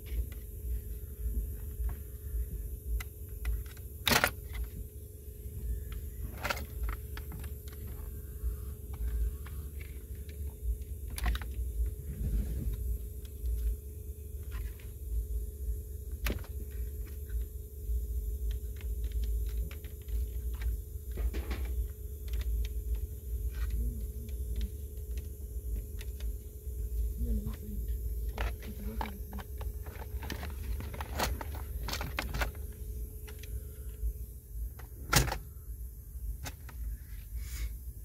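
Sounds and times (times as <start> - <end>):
plastic clicks and rattles: 2.9 - 4.8, 5.8 - 8.2, 8.9 - 11.7, 18.4 - 26.4, 28.2 - 33.6, 34.7 - 35.5.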